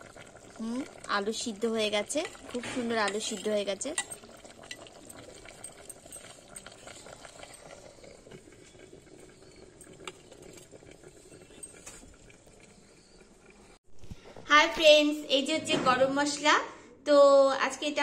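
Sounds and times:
curry bubbling in a pot: 0.0s - 13.8s.

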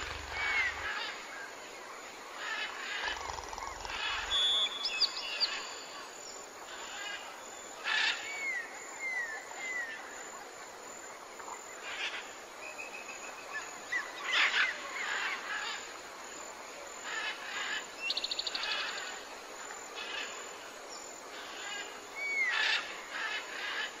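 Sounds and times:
birds calling and chirping: 0.0s - 1.2s.

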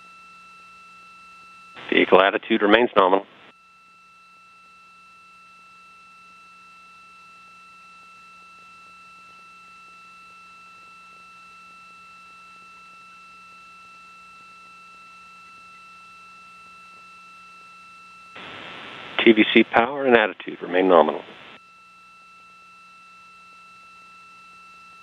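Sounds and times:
faint low hum: 1.8s - 3.5s, 8.0s - 21.6s
light hiss: 18.4s - 19.8s.

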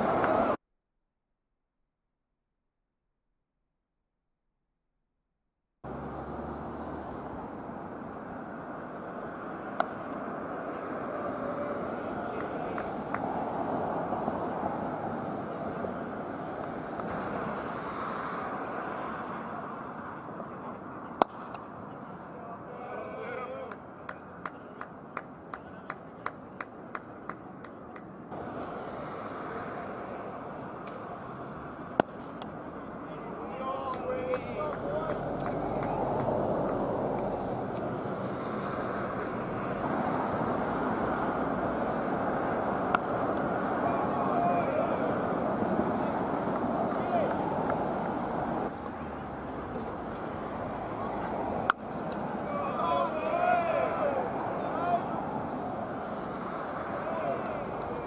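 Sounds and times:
outdoor background noise: 0.0s - 0.6s, 5.8s - 58.0s
cricket bat striking ball: 9.7s - 10.2s, 11.1s - 13.3s, 21.1s - 22.1s, 31.7s - 32.7s, 42.9s - 43.5s.

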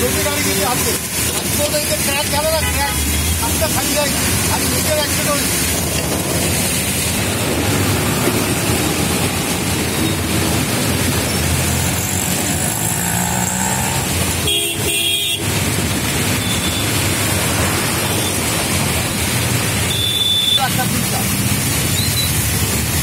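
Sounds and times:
car engines running: 0.0s - 19.9s
tyres hissing through water: 0.0s - 23.0s
car horns honking: 14.0s - 15.6s, 19.8s - 20.8s.

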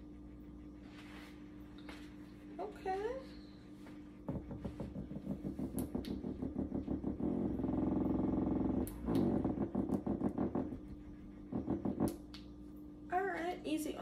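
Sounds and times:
massager motor buzzing: 4.2s - 12.6s.

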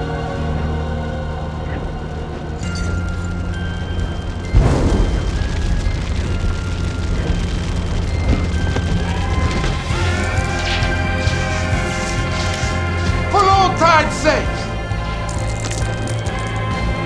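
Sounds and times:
deep train rumble: 0.0s - 17.0s
heavy boom: 4.4s - 10.4s.

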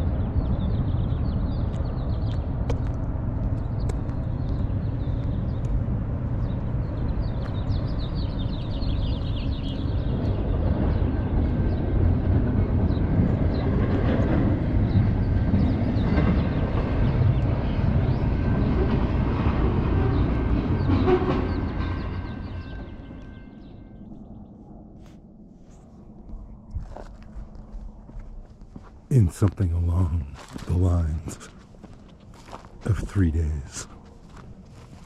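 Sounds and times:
traffic rumble: 25.6s - 35.0s.

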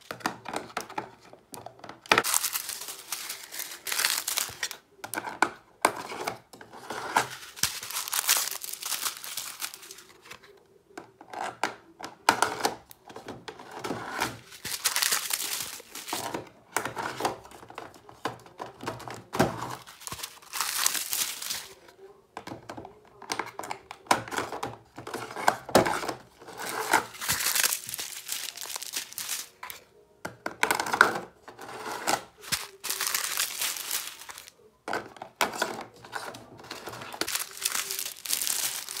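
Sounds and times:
plastic bags crinkling: 2.2s - 4.8s, 7.2s - 10.3s, 14.3s - 16.4s, 18.2s - 21.8s, 25.8s - 29.8s, 32.2s - 34.5s, 35.6s - 39.0s.

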